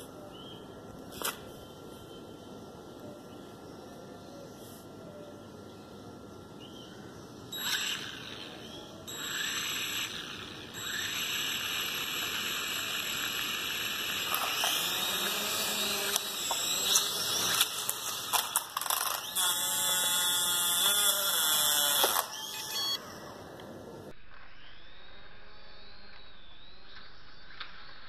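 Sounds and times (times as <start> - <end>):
toy drone motors whining: 7.6 - 23.4.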